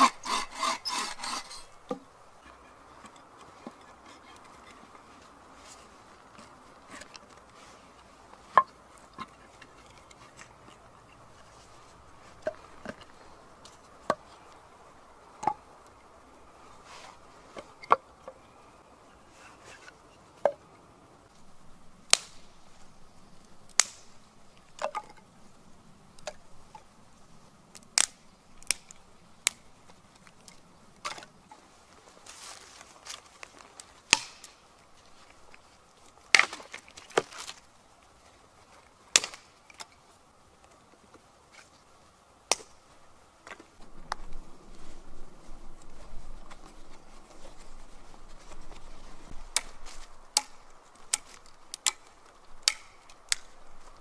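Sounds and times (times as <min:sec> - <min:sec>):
logs knocking together: 0:08.5 - 0:10.8, 0:12.4 - 0:14.3.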